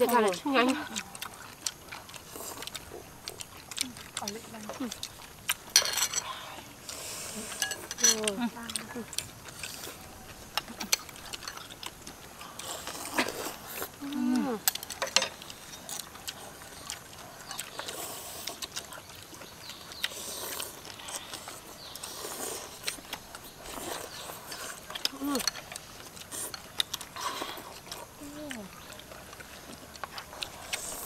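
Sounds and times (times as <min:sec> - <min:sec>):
people slurping noodles: 0:00.0 - 0:31.0
chopsticks clicking on bowls: 0:06.9 - 0:12.2, 0:14.0 - 0:17.9, 0:24.1 - 0:27.1.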